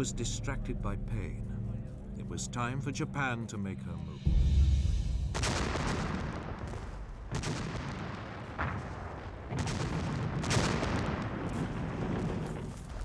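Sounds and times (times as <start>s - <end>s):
artillery and gunfire shots: 5.3s - 13.0s.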